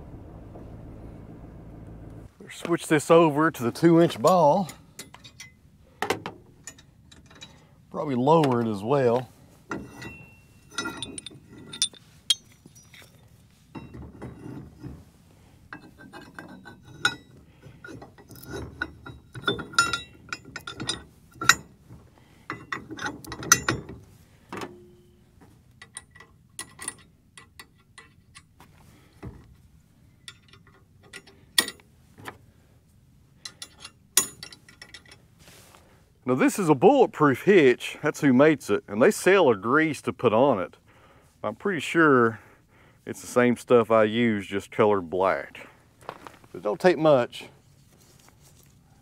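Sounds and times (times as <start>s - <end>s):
metal clicks and scraping rattles: 4.0s - 7.7s, 8.3s - 32.4s, 33.4s - 35.3s
metal ring: 9.7s - 14.9s, 15.7s - 21.8s, 22.4s - 24.0s, 24.6s - 28.5s, 33.4s - 35.2s.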